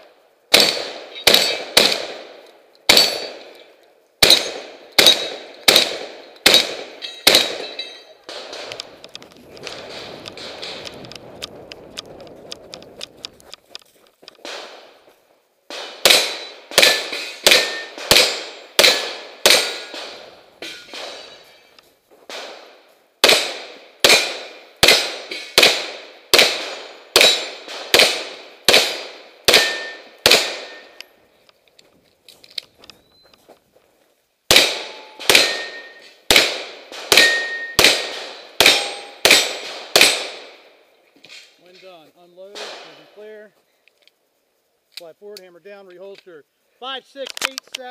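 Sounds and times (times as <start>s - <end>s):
rapid gunshots: 0.5s - 2.3s, 4.2s - 7.6s, 15.7s - 20.3s, 22.3s - 30.8s, 36.3s - 40.6s
steel targets ringing: 2.9s - 3.4s, 6.5s - 8.2s, 34.8s - 36.2s, 37.2s - 37.9s.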